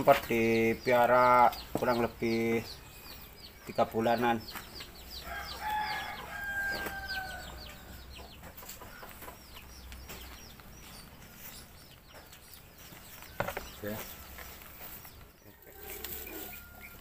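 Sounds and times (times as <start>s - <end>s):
rooster crowing: 5.2s - 7.7s, 15.5s - 17.0s.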